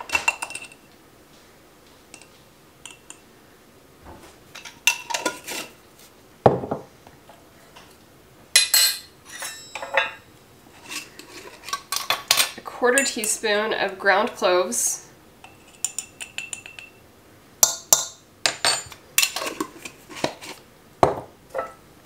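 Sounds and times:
metal spoon clinking on glass: 8.6s - 10.2s, 15.4s - 17.0s.

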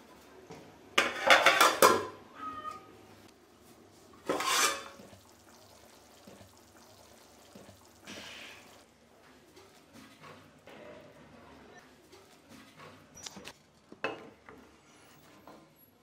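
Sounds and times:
pot lid clattering on metal pot: 1.0s - 2.1s, 4.3s - 5.0s.

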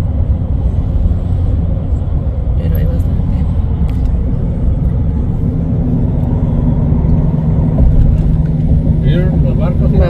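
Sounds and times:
vehicle road and engine rumble: 0.0s - 10.0s.

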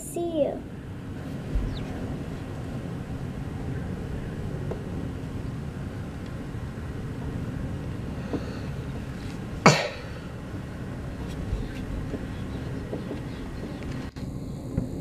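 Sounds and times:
low background rumble: 0.0s - 15.0s
cough close to microphone: 9.6s - 10.2s.

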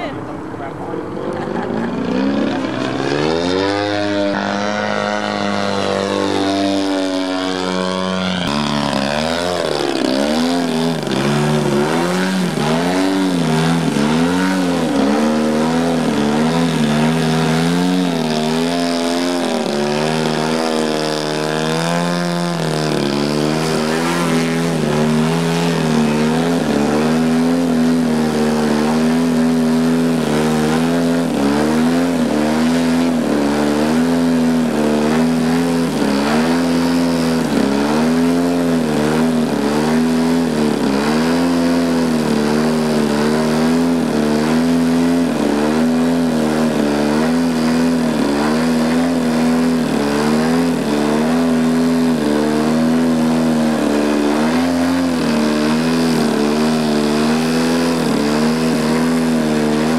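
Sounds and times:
model airplane engine and propeller: 0.0s - 59.9s.

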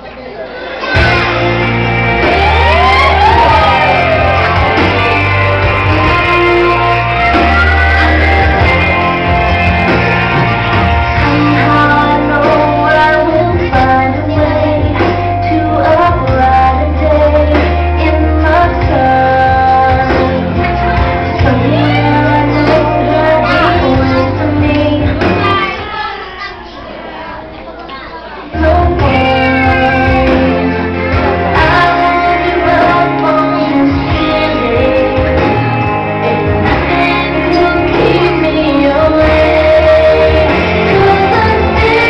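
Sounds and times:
sustained bass notes: 0.9s - 25.9s, 28.6s - 42.0s
person singing: 0.9s - 26.1s, 28.5s - 42.0s.

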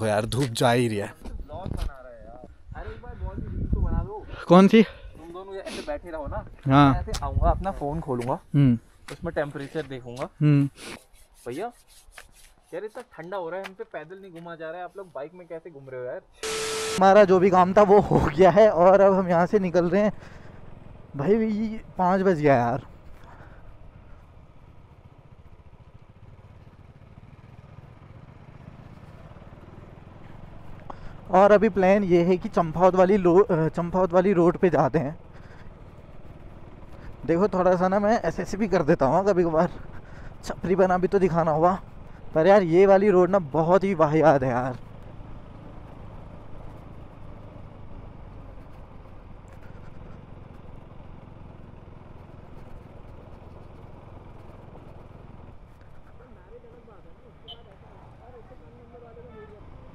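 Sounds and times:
road noise: 0.0s - 59.9s
motorcycle engine running: 16.4s - 59.9s.

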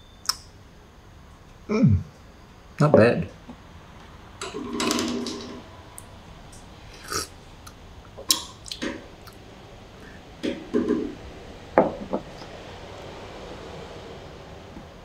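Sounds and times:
person sipping and slurping: 6.9s - 7.3s
glass knocking on wooden table: 11.8s - 12.3s.

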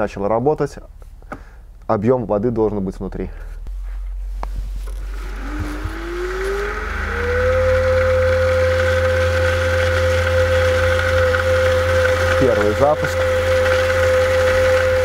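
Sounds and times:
pump motor whine: 4.5s - 15.0s.

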